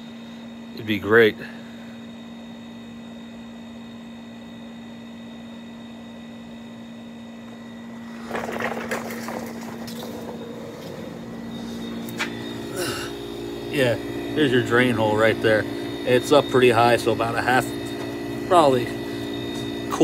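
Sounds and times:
air conditioner humming: 0.0 - 20.0
rustling scuffing noise: 9.8 - 12.4.

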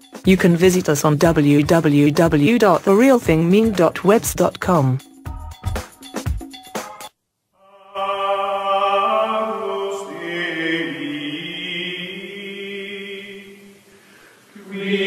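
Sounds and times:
choir singing sustained chords: 7.6 - 15.0.

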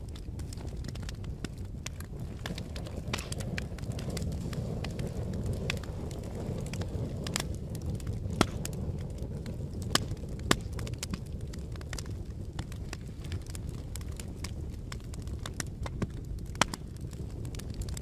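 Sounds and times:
campfire crackling and popping: 0.0 - 18.0.

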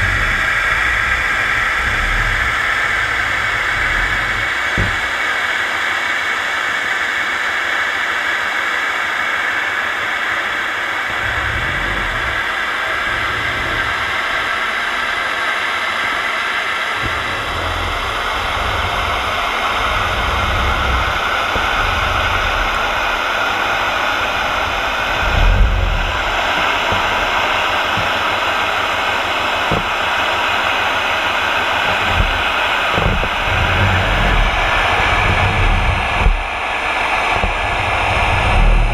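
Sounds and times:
low rumbling buffets: 0.0 - 6.0, 11.0 - 38.9
underwater rushing hiss: 0.0 - 7.8, 9.5 - 38.9.

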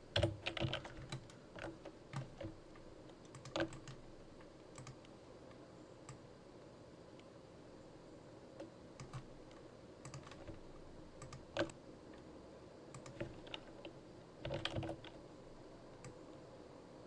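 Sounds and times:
keyboard and mouse clicks: 0.1 - 5.1, 8.6 - 10.6, 11.2 - 11.8, 12.9 - 15.2.

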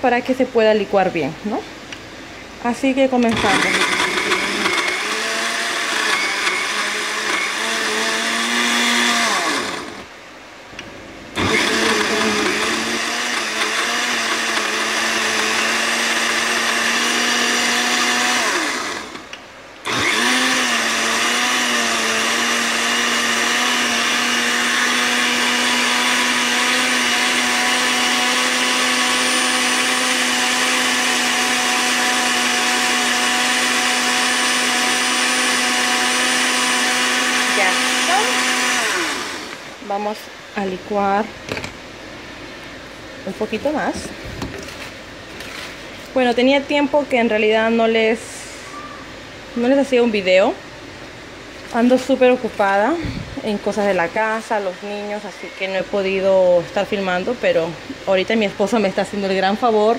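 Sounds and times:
blender motor running: 3.3 - 10.1, 11.4 - 39.8.

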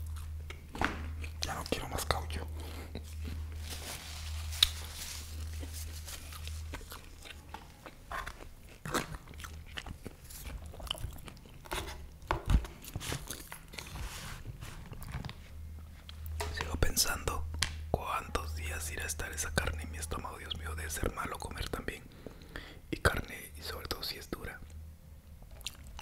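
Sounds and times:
chewing and crunching food: 0.0 - 16.4, 25.4 - 26.0.

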